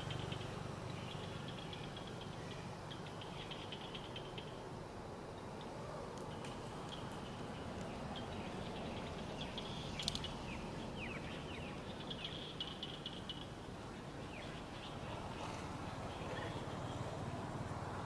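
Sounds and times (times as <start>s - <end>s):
steady background hiss: 0.0s - 18.0s
sharp clicks: 10.0s - 10.4s.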